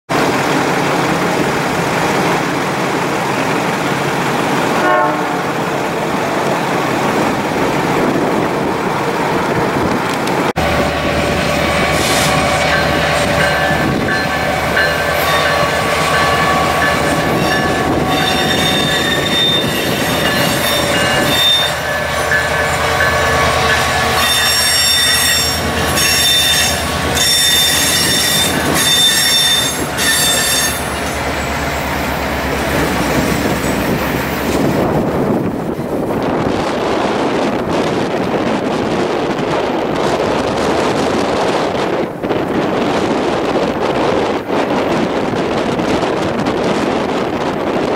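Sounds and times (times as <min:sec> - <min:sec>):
diesel locomotive rumbling: 0:00.1 - 0:47.9
wind on microphone: 0:03.5 - 0:47.9
train wheel squeal: 0:11.4 - 0:31.9.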